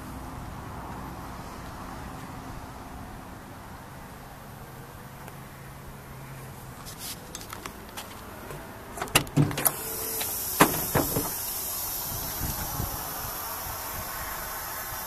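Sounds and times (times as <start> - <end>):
metal door clunks: 8.5 - 9.8, 10.6 - 11.4
truck door latch clicks: 8.5 - 11.4
steady hiss: 9.6 - 15.0.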